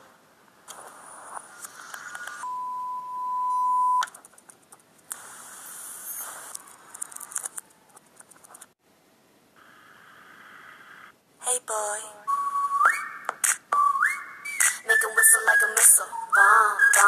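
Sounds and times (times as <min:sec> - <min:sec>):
high-pitched electronic beep: 0:02.4 - 0:04.0
scattered clicks: 0:06.5 - 0:08.8.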